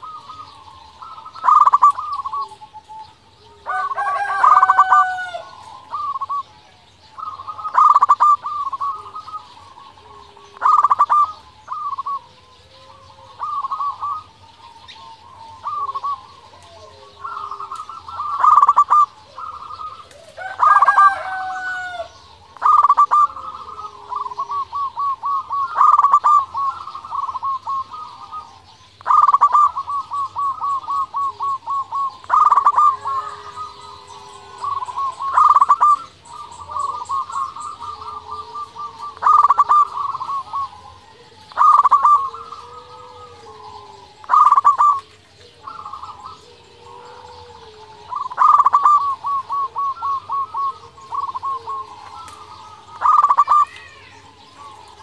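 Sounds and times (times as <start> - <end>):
dove cooing: 0.0 - 55.0
faint bird calls: 0.0 - 55.0.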